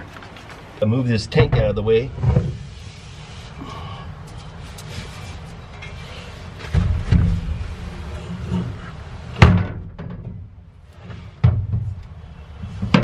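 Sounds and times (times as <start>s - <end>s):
metal tank thumping on truck bed: 6.7s - 7.6s, 9.4s - 10.5s, 11.1s - 12.0s.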